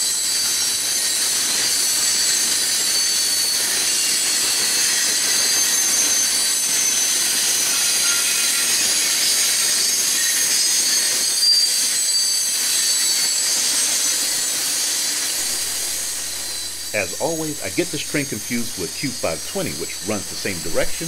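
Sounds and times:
train wheels squealing: 0.0s - 16.7s.

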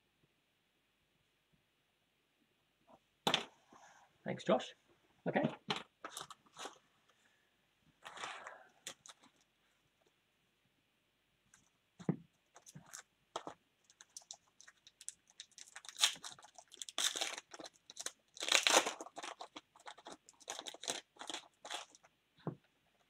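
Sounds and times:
foil wrappers crinkling: 8.0s - 9.4s, 12.5s - 22.1s
wrapper being torn open: 12.6s - 22.1s.

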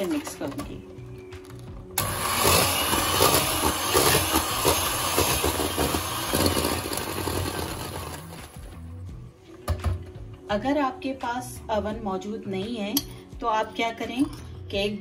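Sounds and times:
electric hand mixer running: 2.0s - 8.6s.

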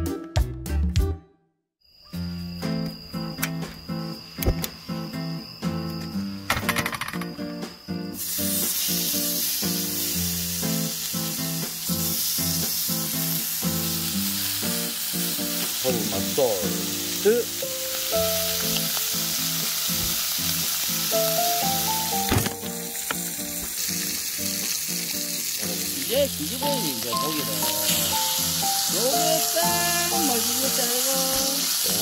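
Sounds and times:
background music: 0.0s - 1.4s, 2.3s - 32.0s
meat sizzling on griddle: 8.1s - 32.0s.

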